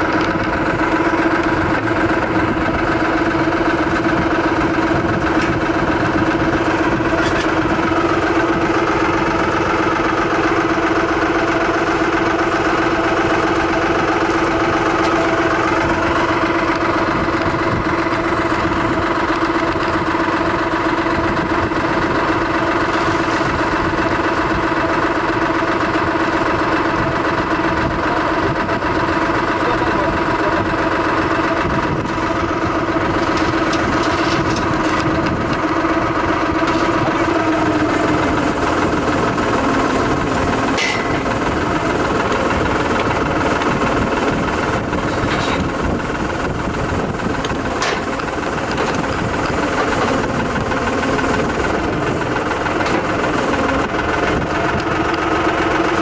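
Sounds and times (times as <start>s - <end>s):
drilling rig engine idling: 0.0s - 56.0s.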